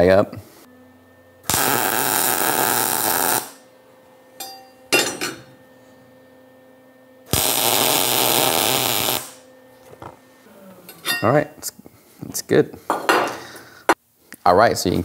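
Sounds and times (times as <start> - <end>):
welder sizzling: 1.4 - 3.7, 7.3 - 9.4.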